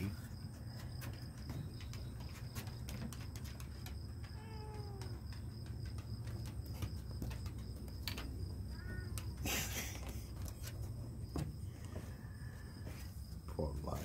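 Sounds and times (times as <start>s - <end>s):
cat meowing: 4.2s - 5.3s, 8.7s - 9.2s.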